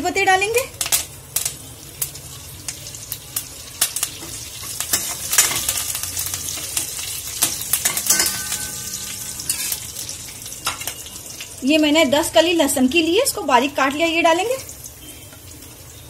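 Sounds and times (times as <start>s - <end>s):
spices sizzling in hot oil: 0.0s - 16.0s
ladle stirring in a pan: 4.1s - 10.9s.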